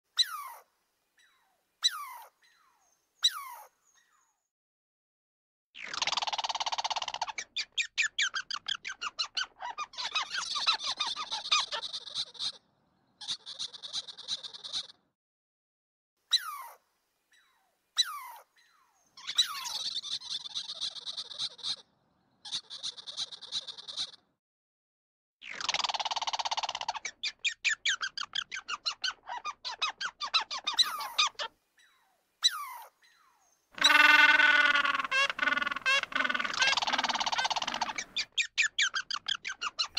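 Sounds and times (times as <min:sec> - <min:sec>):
squirrel chirping: 0:27.4 - 0:33.2, 0:33.8 - 0:39.9.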